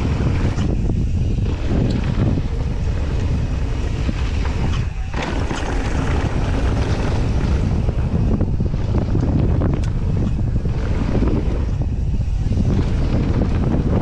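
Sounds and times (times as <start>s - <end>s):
bike tyres rolling on gravel: 0.0s - 14.0s
wind buffeting microphone: 0.0s - 14.0s
clicks and rattles from bike: 0.3s - 8.3s, 9.0s - 11.8s.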